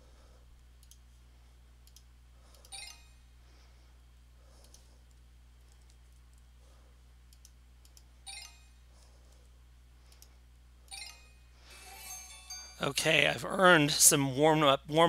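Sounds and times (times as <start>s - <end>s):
low steady hum: 0.0s - 15.0s
computer mouse clicks: 0.6s - 1.1s, 1.8s - 2.8s, 4.6s - 6.5s, 7.3s - 8.1s, 10.1s - 10.4s.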